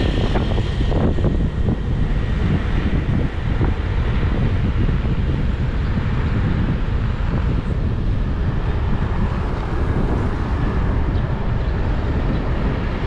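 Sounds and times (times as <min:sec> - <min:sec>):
road noise: 0:00.0 - 0:13.0
wind buffeting microphone: 0:00.0 - 0:13.0.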